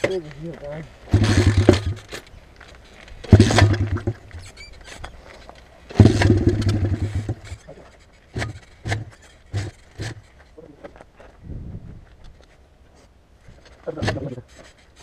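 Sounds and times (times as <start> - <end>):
motorcycle engine kick-start turning over: 1.1 - 2.3, 3.2 - 10.5, 13.6 - 15.0.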